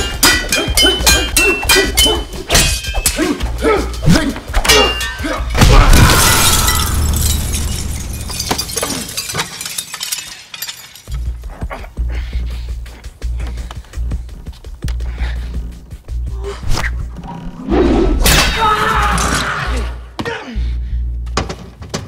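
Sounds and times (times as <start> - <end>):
window glass breaking: 5.0 - 11.1
punch and strike impacts: 5.5 - 6.7
glass shards showering: 6.1 - 11.2.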